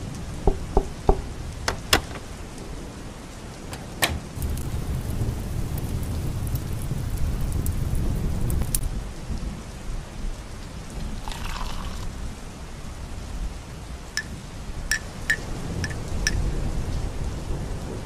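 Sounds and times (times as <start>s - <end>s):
steady rain: 0.0s - 18.0s
low rumble of thunder: 2.2s - 10.9s, 13.2s - 18.0s.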